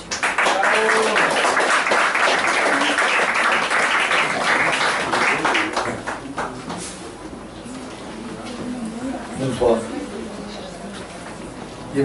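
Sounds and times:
audience applauding: 0.0 - 6.8
voices among clapping: 0.1 - 6.8.

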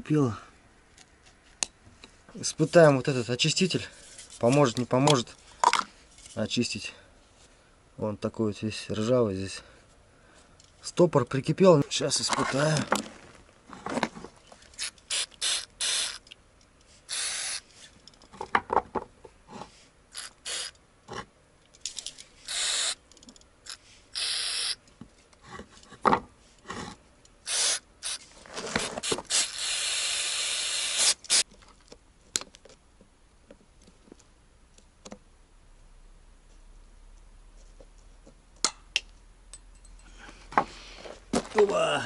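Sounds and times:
aerosol spray hissing: 14.8 - 16.2, 17.1 - 17.6, 20.2 - 20.7, 22.5 - 23.0, 29.0 - 31.4.

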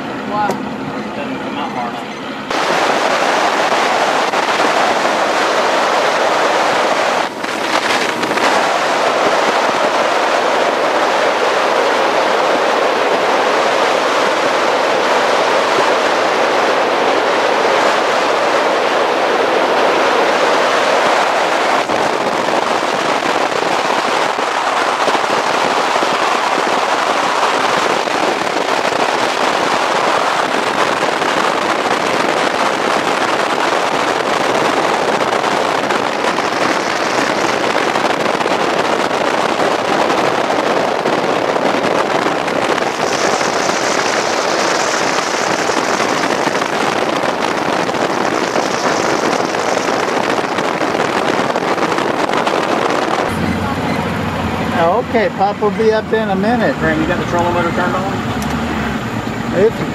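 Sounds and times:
water rushing: 0.0 - 59.9
wind buffeting microphone: 0.0 - 59.9
boat motor: 41.4 - 50.6, 53.2 - 59.9.

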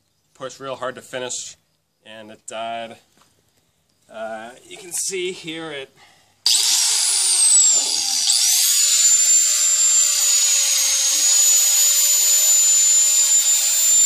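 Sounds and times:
angle grinder whining: 6.4 - 14.0.

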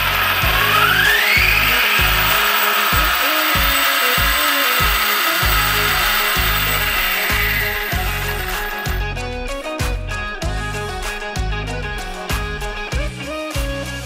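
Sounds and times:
electric motor whine: 0.0 - 9.2
background music with bass beat: 0.0 - 14.0.

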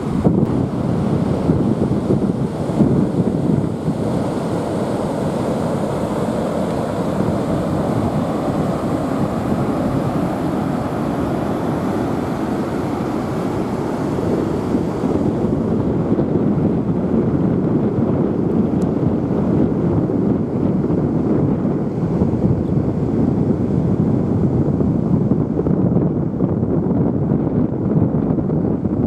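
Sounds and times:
ocean surf breaking: 0.0 - 17.5
wind buffeting microphone: 0.0 - 29.0.

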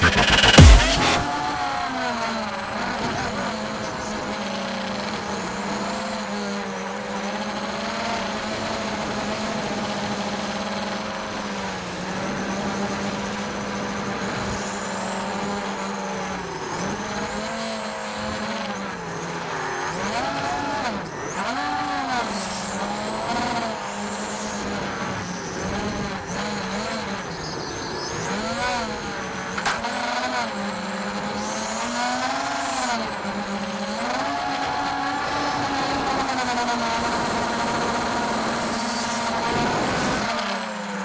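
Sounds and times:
quadcopter motors whining: 0.0 - 41.0.

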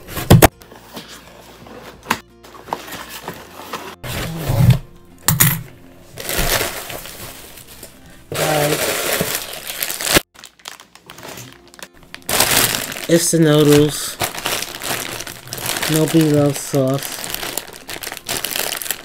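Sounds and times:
plastic wrapping crinkling: 6.1 - 19.0.

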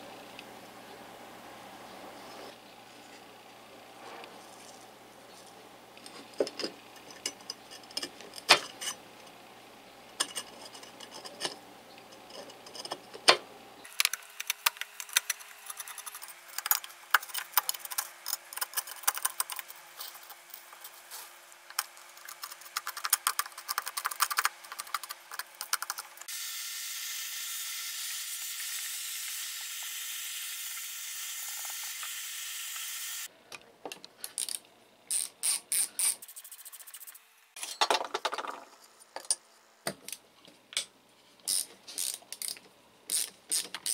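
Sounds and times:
vacuum cleaner hissing: 26.2 - 33.3.

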